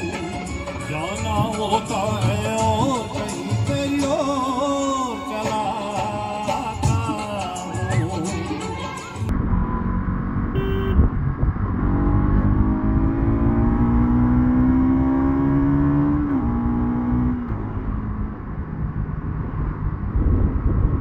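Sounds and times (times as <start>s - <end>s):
wind: 0.0s - 21.0s
road rumble: 9.2s - 21.0s
motorcycle engine accelerating: 9.3s - 21.0s.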